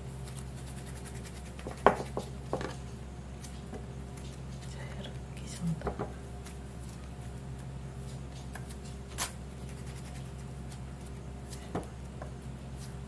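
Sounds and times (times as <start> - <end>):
dough rustling in hands: 0.0 - 13.0
low room hum: 0.0 - 13.0.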